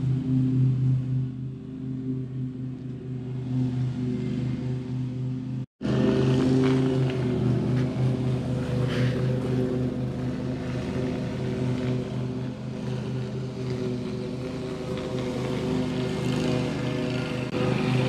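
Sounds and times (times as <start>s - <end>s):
motor droning: 0.0s - 18.0s.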